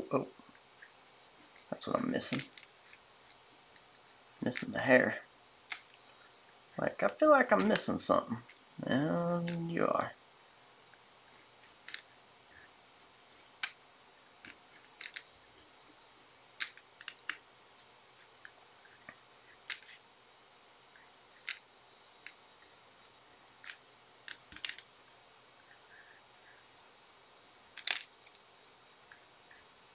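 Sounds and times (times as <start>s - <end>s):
pencil scratching on paper: 12.6s - 13.6s.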